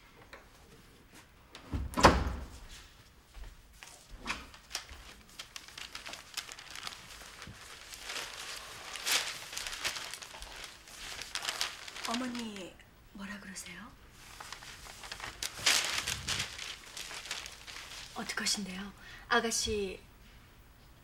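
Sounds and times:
door shutting with a thud: 0:01.6 - 0:02.6
footsteps: 0:02.5 - 0:04.3
newspaper rustling: 0:03.8 - 0:12.8, 0:14.1 - 0:18.8.

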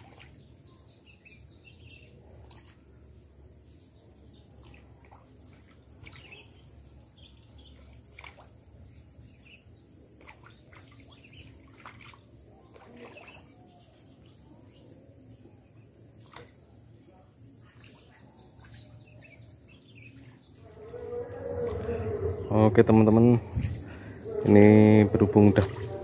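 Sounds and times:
low rumble: 0:20.6 - 0:26.0.

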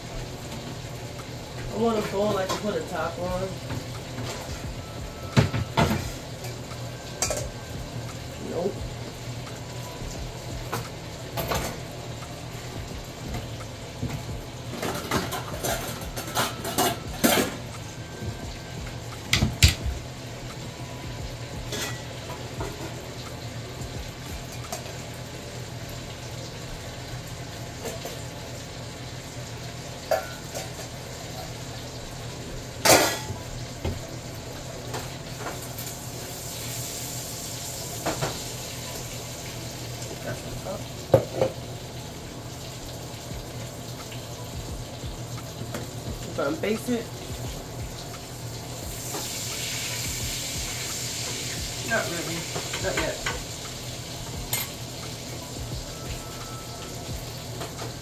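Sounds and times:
dishes and pots clinking: 0:01.6 - 0:02.9, 0:03.5 - 0:07.7, 0:10.6 - 0:11.9, 0:13.3 - 0:17.9, 0:19.3 - 0:20.0, 0:21.7 - 0:23.3, 0:27.8 - 0:28.4, 0:29.7 - 0:32.0, 0:32.8 - 0:34.0, 0:38.0 - 0:38.4, 0:40.1 - 0:41.7, 0:52.5 - 0:53.6, 0:54.5 - 0:55.2.

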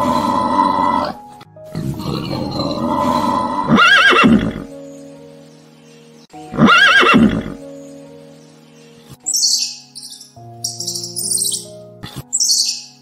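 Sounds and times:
background music: 0:00.0 - 0:13.0
horse whinnying: 0:02.0 - 0:04.7, 0:06.5 - 0:07.6.

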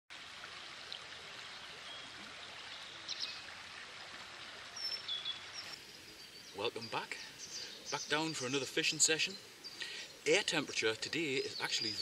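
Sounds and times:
stream running over stones: 0:00.1 - 0:12.0
bird chirps: 0:04.8 - 0:12.0.

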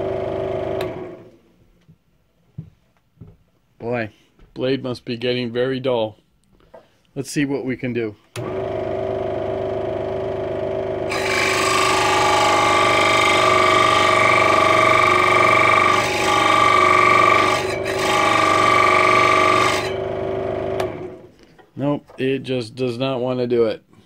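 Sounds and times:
scroll saw motor running: 0:00.0 - 0:01.4, 0:08.4 - 0:21.3
saw blade rasping on wood: 0:11.1 - 0:20.0.

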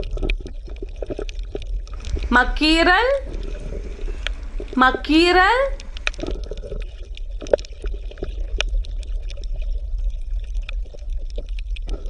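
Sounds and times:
underwater bubbling and gurgling: 0:00.0 - 0:02.4, 0:03.1 - 0:04.8, 0:05.7 - 0:12.0
low rumble: 0:02.0 - 0:06.3.

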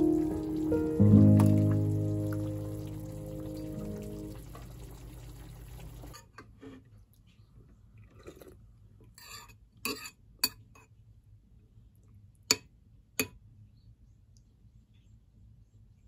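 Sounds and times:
faint scrapes and knocks: 0:06.1 - 0:10.2.

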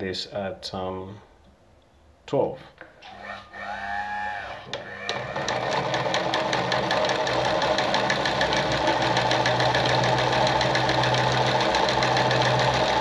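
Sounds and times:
sewing machine motor hum: 0:03.1 - 0:13.0.

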